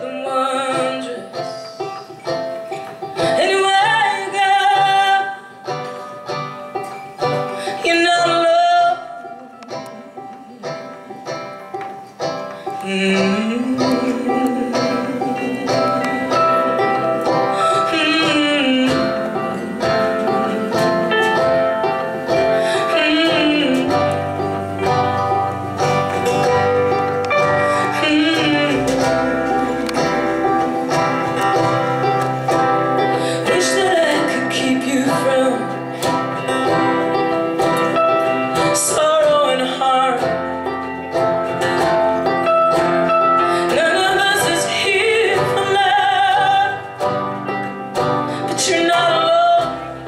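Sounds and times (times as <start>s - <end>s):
woman singing: 0.0s - 2.2s, 3.2s - 6.6s, 7.2s - 11.0s, 12.6s - 26.7s, 27.3s - 50.0s
live band with banjo and guitar: 0.0s - 50.0s.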